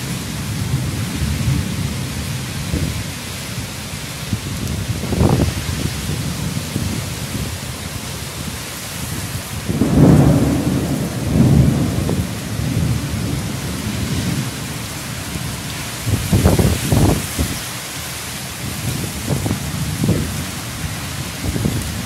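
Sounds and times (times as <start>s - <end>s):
heavy rain on trees: 0.0s - 22.0s
thunder rumbling: 4.2s - 17.6s, 18.6s - 22.0s.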